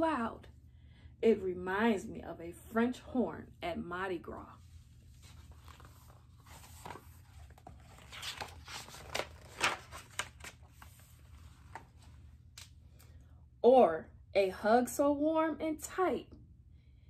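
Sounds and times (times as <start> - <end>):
paper page turning: 5.0 - 12.7.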